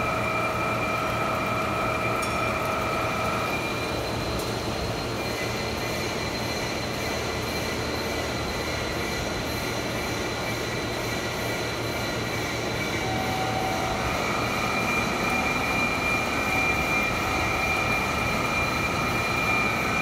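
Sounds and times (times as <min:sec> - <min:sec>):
boring mill machining drone: 0:04.7 - 0:20.0
mid-pitched whine: 0:11.6 - 0:20.0.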